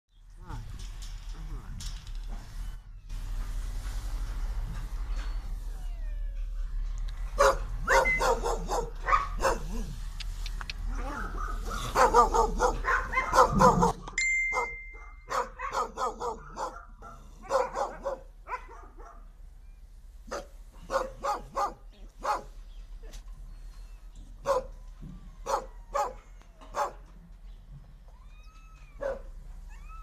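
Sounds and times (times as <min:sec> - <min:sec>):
dogs barking: 0:07.3 - 0:10.0, 0:10.9 - 0:19.3, 0:20.3 - 0:22.6, 0:24.4 - 0:24.7, 0:25.4 - 0:27.1, 0:29.0 - 0:29.3.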